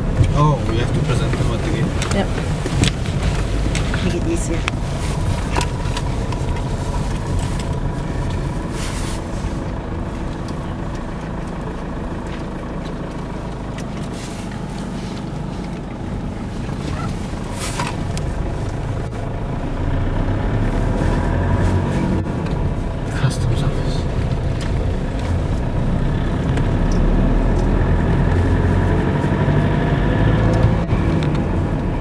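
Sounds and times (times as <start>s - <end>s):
car engine and road rumble: 0.0s - 32.0s.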